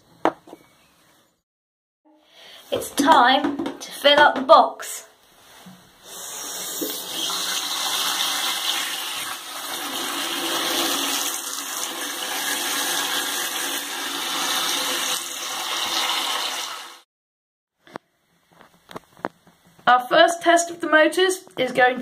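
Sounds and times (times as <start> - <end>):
hose water splashing into box: 6.3 - 17.0.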